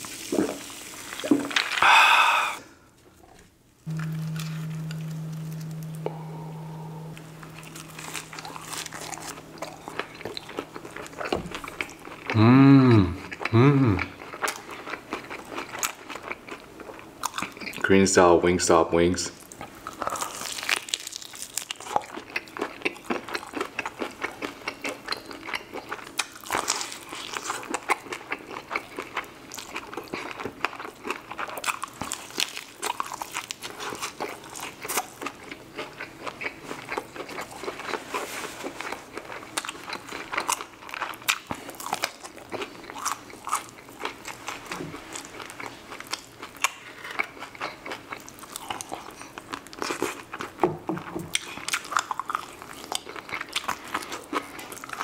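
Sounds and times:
crunching and chewing: 7.2s - 12.4s, 13.1s - 17.8s, 19.4s - 55.0s.

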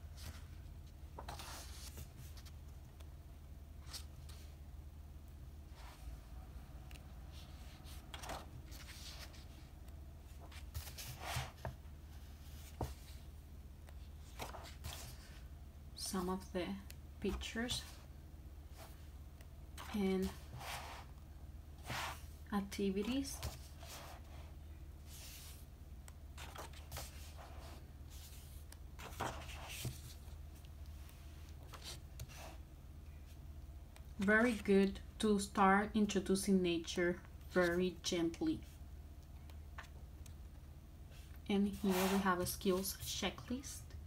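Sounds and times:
faint steady hum: 0.0s - 44.0s
paper pages rustling: 0.2s - 2.6s, 6.9s - 9.7s, 10.3s - 11.8s, 26.4s - 32.6s.

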